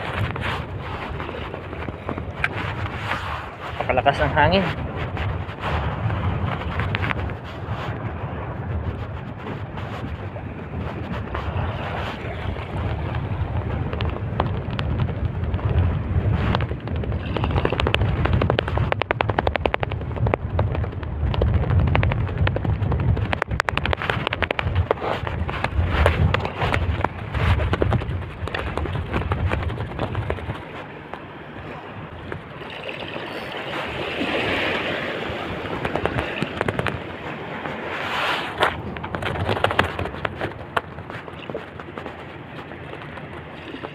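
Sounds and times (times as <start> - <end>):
sea water washing: 0.0 - 43.9
wind buffeting microphone: 0.0 - 43.9
sharp crackling clicks: 16.6 - 30.5.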